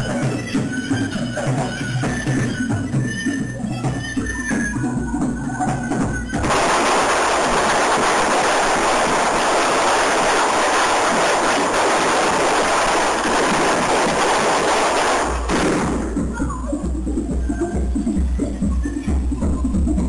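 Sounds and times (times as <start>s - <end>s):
firework spraying sparks hiss: 6.4s - 16.0s.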